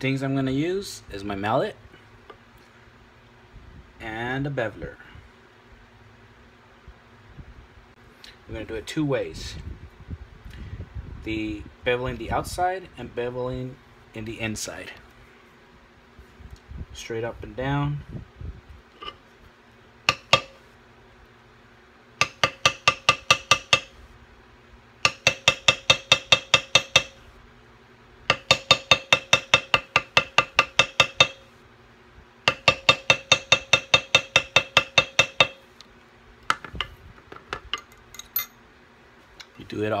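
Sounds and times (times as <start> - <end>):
mallet striking metal tool: 20.1 - 20.6, 22.2 - 24.0, 25.0 - 27.2, 28.3 - 31.5, 32.5 - 35.6.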